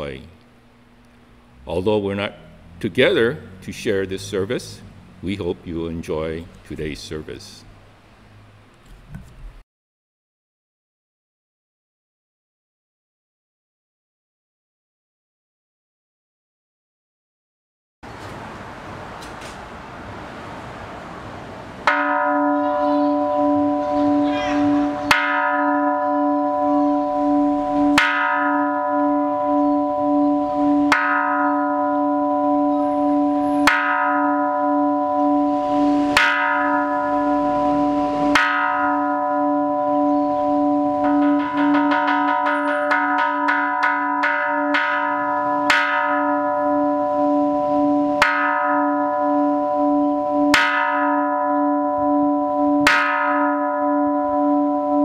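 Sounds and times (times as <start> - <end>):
temple bell struck with mallet: 21.8 - 55.0.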